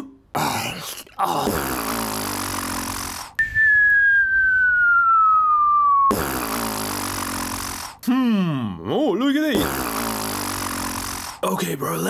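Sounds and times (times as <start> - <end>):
whistle sliding down in pitch: 3.4 - 6.1.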